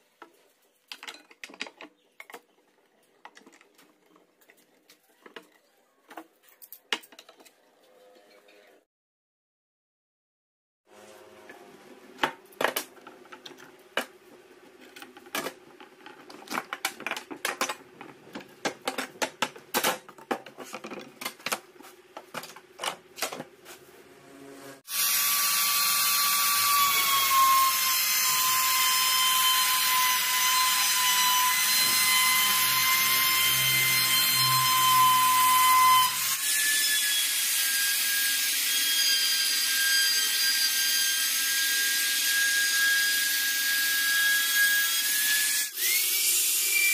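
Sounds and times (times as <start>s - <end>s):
clamps clicking and knocking: 0.9s - 7.6s, 14.8s - 23.5s.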